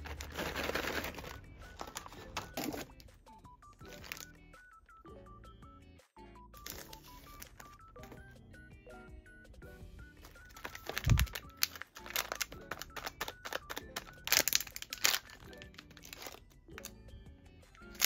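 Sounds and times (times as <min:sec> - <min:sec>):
foil snack packets crinkling: 0:00.0 - 0:02.9, 0:03.8 - 0:04.4, 0:06.6 - 0:07.8, 0:10.2 - 0:16.9, 0:17.8 - 0:18.0
background music: 0:00.0 - 0:18.0.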